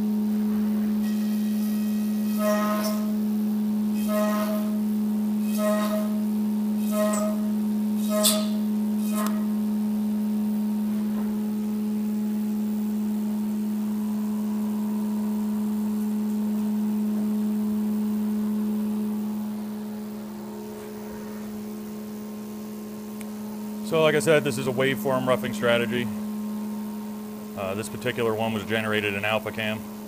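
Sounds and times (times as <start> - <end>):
milling machine cutting tone: 1.0 - 3.2, 5.4 - 6.2, 6.8 - 9.6, 23.2 - 29.8.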